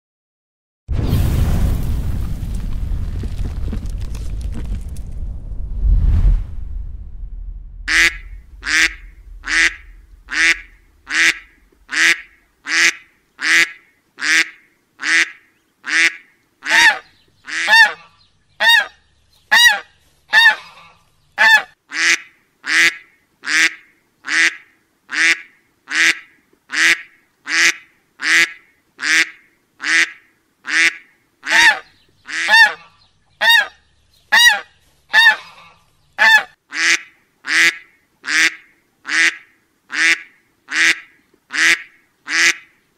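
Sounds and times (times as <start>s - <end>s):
duck quacking: 7.9s - 18.9s, 19.5s - 42.8s.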